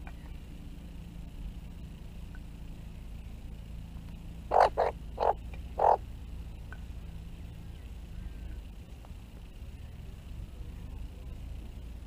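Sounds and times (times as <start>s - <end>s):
low outdoor rumble: 0.0s - 12.0s
magpie calling harshly: 4.5s - 6.0s.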